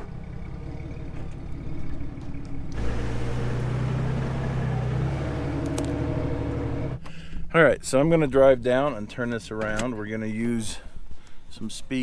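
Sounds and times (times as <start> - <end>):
vehicle engine running: 0.0 - 7.1.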